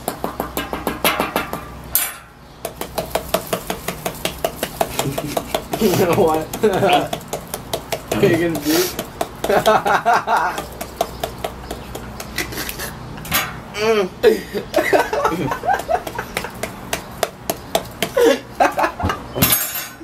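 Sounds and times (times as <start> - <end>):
boys laughing: 4.6 - 16.9, 17.9 - 19.5.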